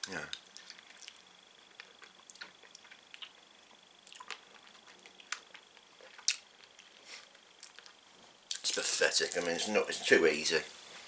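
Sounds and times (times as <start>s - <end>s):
wet mouth clicks and smacks: 0.0s - 3.4s, 4.0s - 5.6s.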